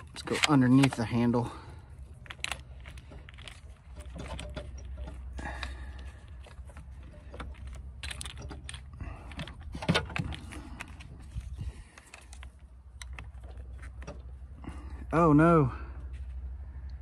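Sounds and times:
small parts clicking and rattling: 0.0 - 14.6.

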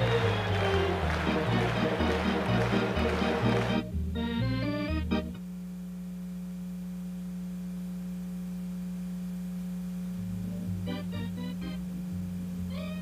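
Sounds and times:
organ music: 0.0 - 5.4, 10.3 - 13.0.

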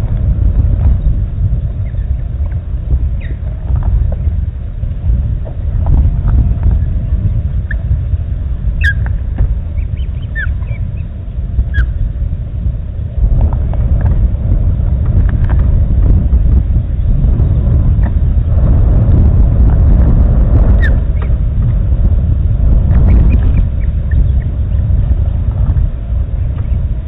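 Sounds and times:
wind buffeting microphone: 0.0 - 27.0
high bird chirps: 3.2 - 3.4, 8.8 - 9.1, 9.7 - 11.1.

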